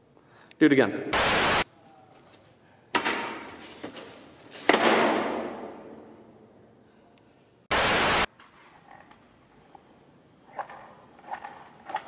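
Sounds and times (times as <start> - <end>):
static hiss burst: 1.1 - 1.7, 7.7 - 8.3.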